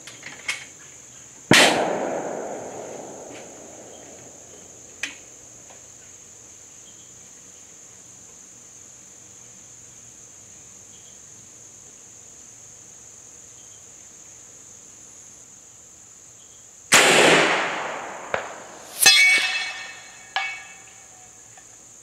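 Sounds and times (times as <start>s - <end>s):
crickets chirping: 0.0s - 22.0s
air rifle shot: 1.5s - 4.8s, 16.9s - 20.6s
metallic clank ringing: 18.0s - 21.2s.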